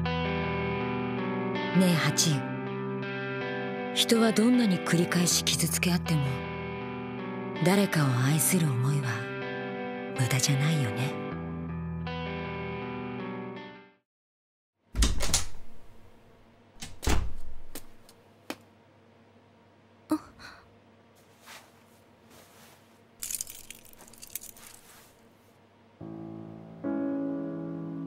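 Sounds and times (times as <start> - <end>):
soft background music: 0.1 - 13.7, 26.0 - 28.0
short rustle: 21.2 - 25.6.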